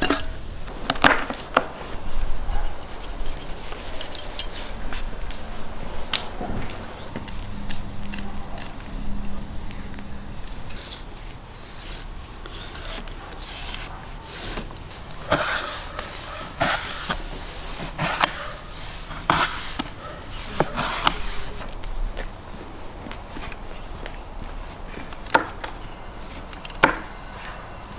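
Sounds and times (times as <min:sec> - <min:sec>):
knife scraping fish: 0:01.9 - 0:05.1, 0:10.8 - 0:21.6.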